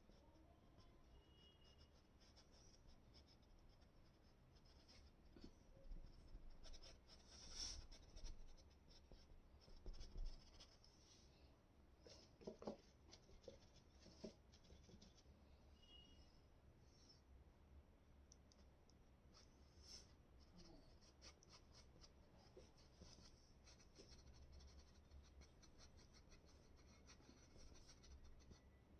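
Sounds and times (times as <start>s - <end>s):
paintbrush scratching on canvas: 6.1s - 11.2s, 12.1s - 15.3s, 19.4s - 28.6s.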